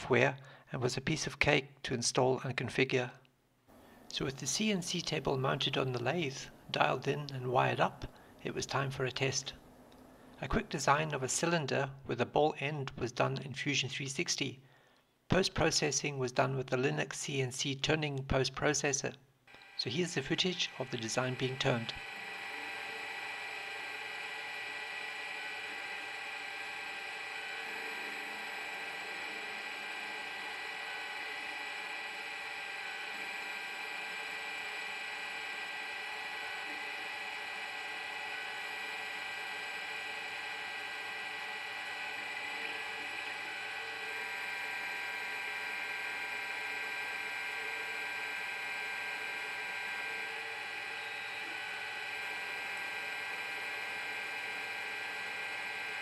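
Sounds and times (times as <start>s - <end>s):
constant whining tones: 19.5s - 56.0s
lathe spindle hum: 19.5s - 56.0s.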